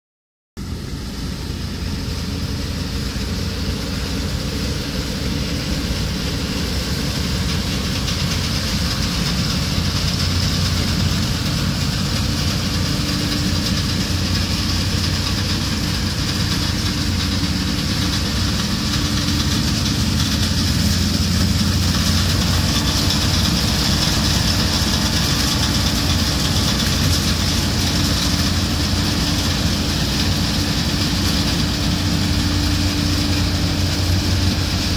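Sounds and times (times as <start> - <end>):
combine harvester engine droning: 0.6 - 34.9.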